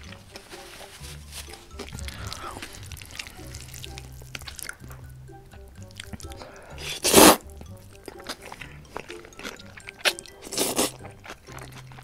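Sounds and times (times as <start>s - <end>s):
faint background music: 0.0s - 12.0s
person slurping noodles: 6.0s - 11.8s.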